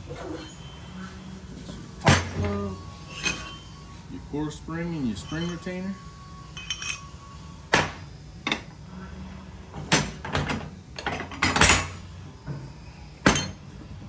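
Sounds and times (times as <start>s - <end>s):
steel parts knocking and clanking: 13.2s - 13.7s.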